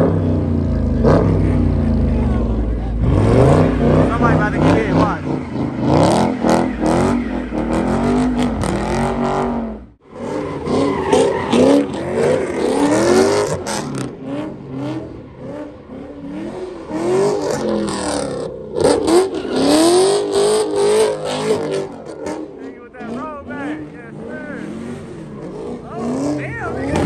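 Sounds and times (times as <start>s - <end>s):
car engines revving: 0.0s - 27.0s
tyres squealing on pavement: 1.3s - 9.5s, 10.1s - 27.0s.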